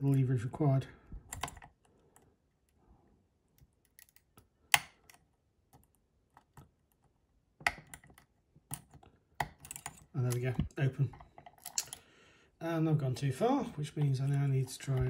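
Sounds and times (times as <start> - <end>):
lock picking metal clicks: 1.3 - 2.3, 3.6 - 6.7, 7.6 - 10.6, 11.4 - 12.0.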